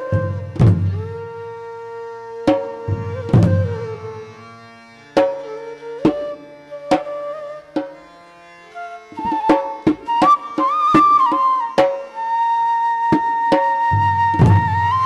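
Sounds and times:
drum strokes: 0.1 - 1.2, 2.5 - 3.9, 13.2 - 15.0.

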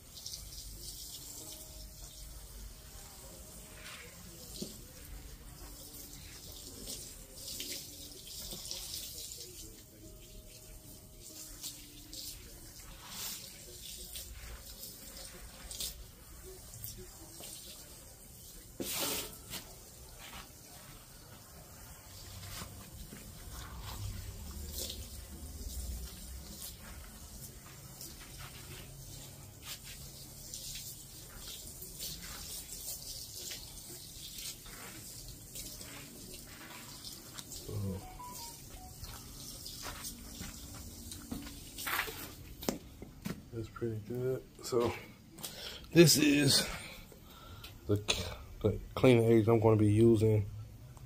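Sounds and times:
squeegee swishing water on rug: 0.0 - 10.1, 10.9 - 42.8.

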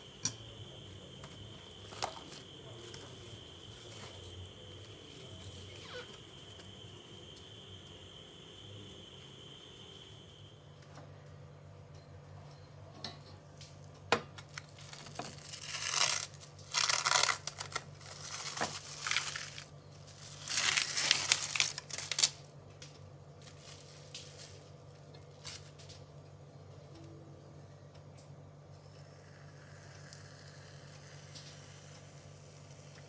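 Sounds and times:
cling film crinkling and tearing: 14.4 - 22.5, 23.4 - 26.0.

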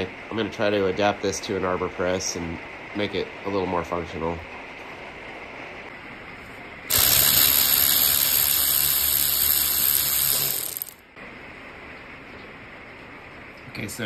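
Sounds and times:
electric ratchet motor whirring: 6.9 - 11.0.

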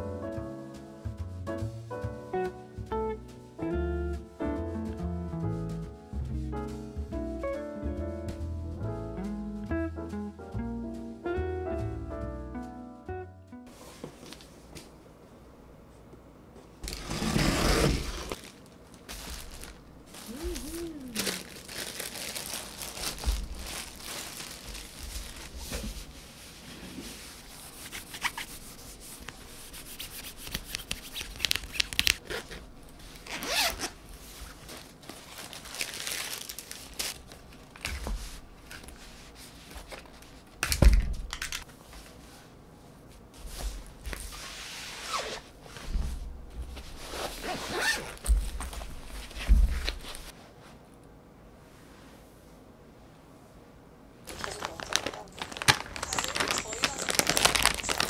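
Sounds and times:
zipper noise: 16.8 - 18.4, 33.2 - 34.0, 44.3 - 45.6, 47.0 - 48.2
cardboard box being opened: 16.8 - 18.5, 54.3 - 58.0
nylon pouch rustling and crinkling: 16.8 - 25.7, 29.8 - 37.9, 47.0 - 49.2, 54.3 - 58.0.

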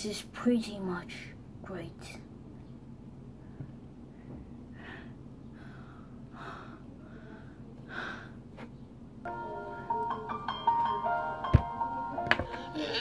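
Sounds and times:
music: 9.3 - 13.0.

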